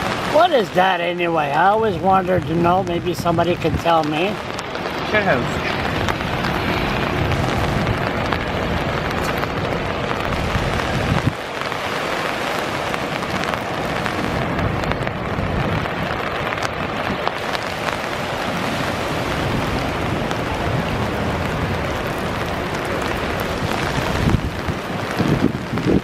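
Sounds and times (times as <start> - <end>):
floodwater roaring through spillway: 0.0 - 26.0
heavy rain: 0.0 - 26.0
deep rumble: 2.0 - 11.6.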